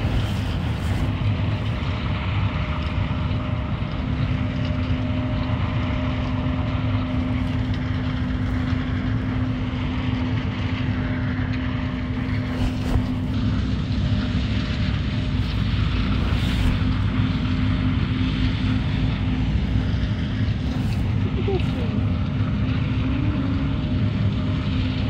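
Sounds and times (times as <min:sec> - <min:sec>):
low machinery rumble: 0:00.0 - 0:25.0
machinery humming: 0:00.0 - 0:25.0.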